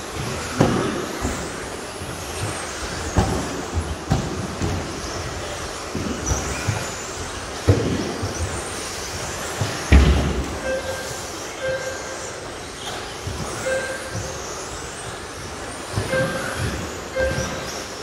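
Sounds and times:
short beeps: 10.6 - 12.2, 13.6 - 14.1.

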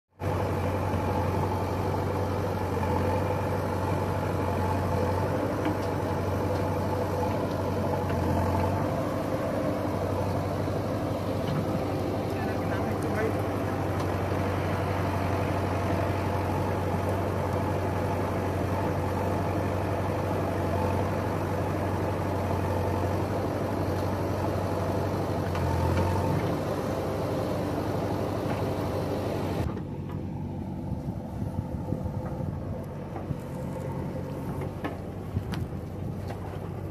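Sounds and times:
diesel engines running: 0.1 - 36.9.

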